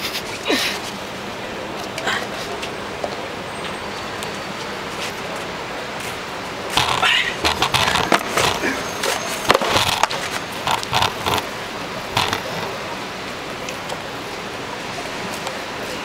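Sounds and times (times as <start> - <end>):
street noise: 0.0 - 16.0
sharp clicks and knocks: 6.7 - 8.6, 9.5 - 11.5, 12.2 - 12.7.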